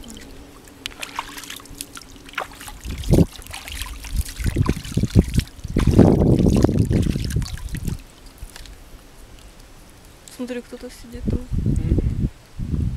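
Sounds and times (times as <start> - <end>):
hands splashing in water: 0.0 - 9.7
water dripping: 0.0 - 10.6.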